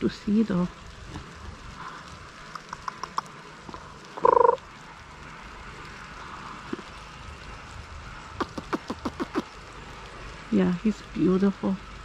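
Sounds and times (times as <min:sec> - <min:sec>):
light rain hissing: 0:00.0 - 0:12.0
sharp ticks: 0:02.3 - 0:03.4, 0:08.4 - 0:09.6.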